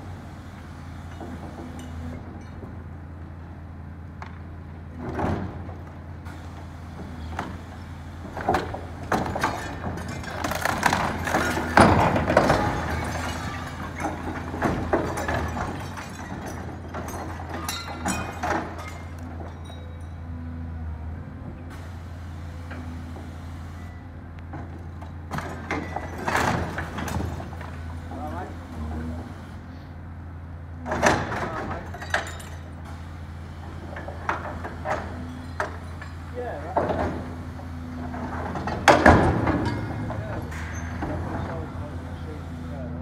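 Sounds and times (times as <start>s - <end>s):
diesel engine drone: 0.0s - 43.0s
crunches of breaking masonry: 8.4s - 19.9s
crash of metal and masonry: 8.4s - 20.2s, 25.0s - 29.1s, 30.8s - 33.0s, 33.7s - 42.3s.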